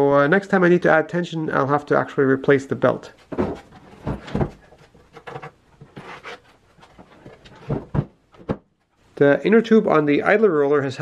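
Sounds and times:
wood rubbing and scraping: 3.1s - 9.0s
wooden knocks and thumps: 3.3s - 6.2s, 6.8s - 8.9s.

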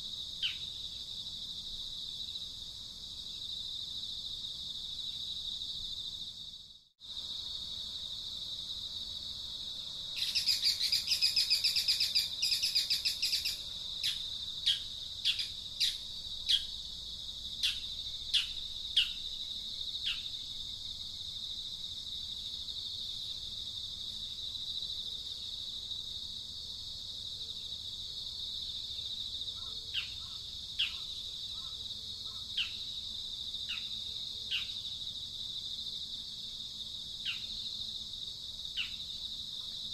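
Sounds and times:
bird chirping: 0.4s - 0.8s, 10.2s - 16.8s, 17.6s - 19.3s, 29.6s - 32.9s, 38.8s - 39.0s
high-pitched insect drone: 10.2s - 16.8s.

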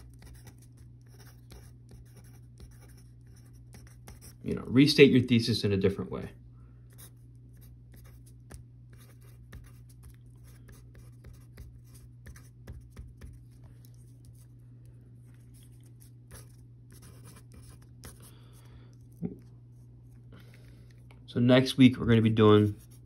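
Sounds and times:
pen scratching on paper: 0.0s - 4.4s, 7.0s - 14.4s, 15.6s - 18.3s
steady low hum: 0.0s - 23.0s.

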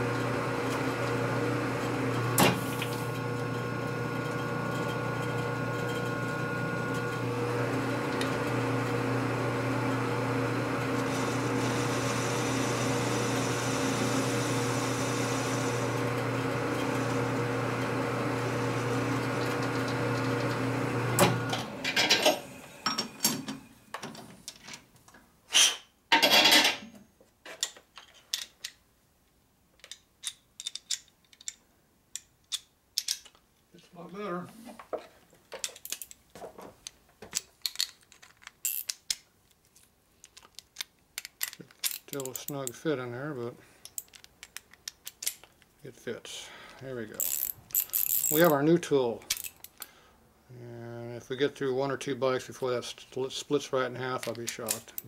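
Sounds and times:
lathe motor humming: 0.0s - 22.8s
metal parts and tools clanking: 26.1s - 26.9s, 29.8s - 31.6s, 35.6s - 36.2s, 37.3s - 39.2s, 40.2s - 42.8s, 43.8s - 45.7s, 47.1s - 48.6s, 49.2s - 49.9s.

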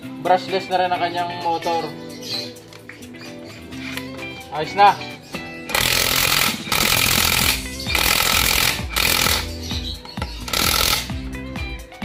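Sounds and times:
background music: 0.0s - 12.0s
impact wrench hammering: 5.7s - 9.5s, 10.2s - 11.1s.

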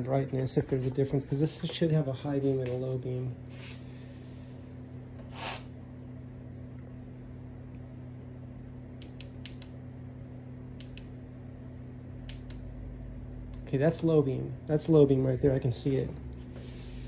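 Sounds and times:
low electrical hum: 0.0s - 17.0s
sharp switch clicks: 9.0s - 9.8s, 10.8s - 11.1s, 12.2s - 12.6s.

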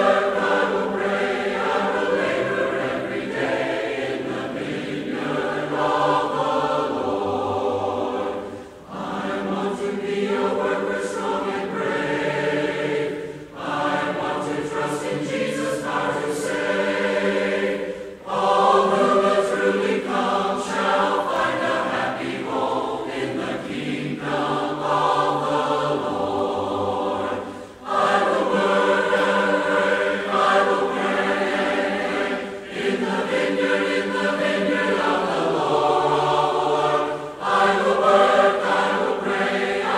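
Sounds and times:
choir singing held chords: 0.0s - 39.9s
singers breathing: 8.4s - 8.9s, 13.2s - 13.6s, 17.8s - 18.3s, 27.4s - 27.9s.

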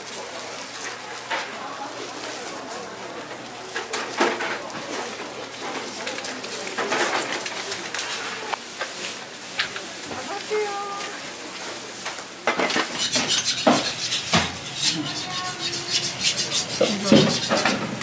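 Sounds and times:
plastic gloves crinkling: 0.0s - 12.4s.

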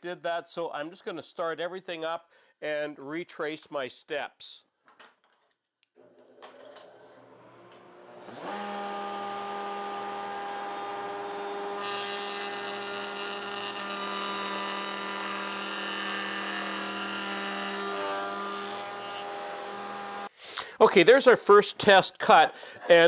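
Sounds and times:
router bit cutting wood: 7.2s - 20.3s
router whining: 7.2s - 20.3s.

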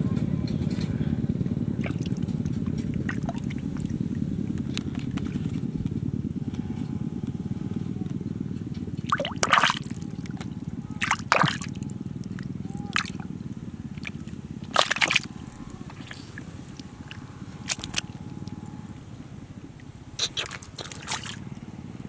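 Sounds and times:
hand squelching in muddy puddle: 9.1s - 10.4s, 11.0s - 13.2s, 14.0s - 16.4s, 17.1s - 18.0s, 20.2s - 21.4s.

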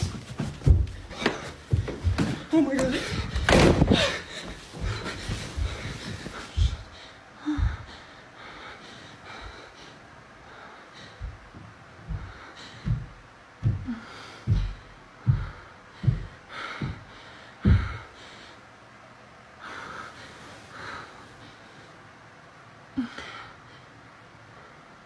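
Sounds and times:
close breathing: 0.0s - 22.3s
dull low thumps: 11.0s - 18.1s.

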